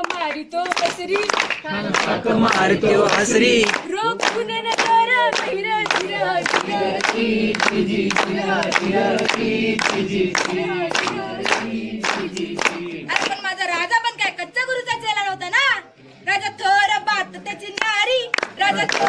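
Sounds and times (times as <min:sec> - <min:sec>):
rhythmic hand clapping: 0:00.0 - 0:13.9, 0:17.5 - 0:19.0
women singing together: 0:00.0 - 0:14.0, 0:17.9 - 0:19.0.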